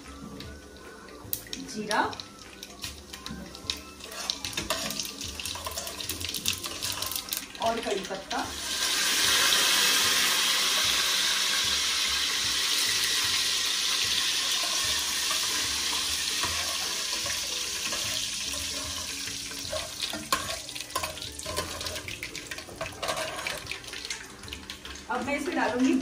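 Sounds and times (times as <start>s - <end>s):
leaves sizzling in hot oil: 1.3s - 26.0s
ladle clicking against pan: 16.4s - 24.2s.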